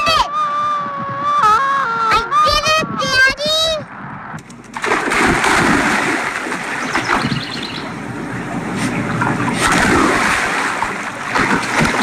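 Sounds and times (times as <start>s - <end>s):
water splashing in a pool: 4.7s - 7.8s, 8.8s - 12.0s.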